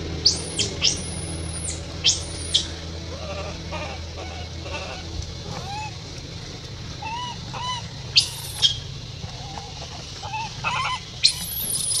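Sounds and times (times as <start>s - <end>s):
infant monkey coo calls: 0.2s - 6.1s, 7.0s - 12.0s
shrill squeaks: 10.3s - 12.0s.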